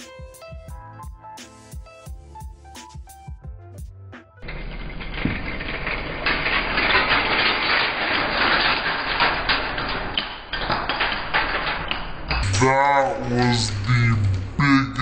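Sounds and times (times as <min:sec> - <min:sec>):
dry pasta clattering: 0:04.4 - 0:14.5
pasta skittering on stove: 0:04.4 - 0:14.6
water boiling: 0:04.4 - 0:14.6.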